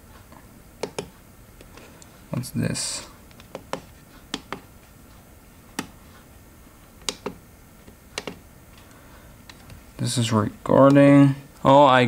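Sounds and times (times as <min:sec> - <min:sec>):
microscope buttons clicking: 0:07.0 - 0:07.4, 0:08.2 - 0:08.4.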